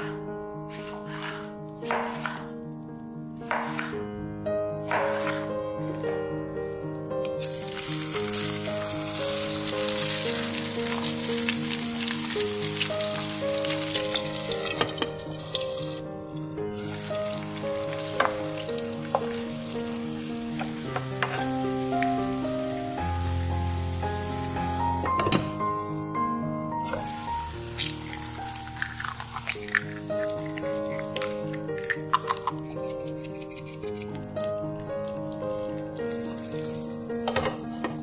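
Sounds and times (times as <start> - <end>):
background music: 0.0 - 38.0
food sizzling in a frying pan: 7.3 - 25.1, 26.8 - 38.0.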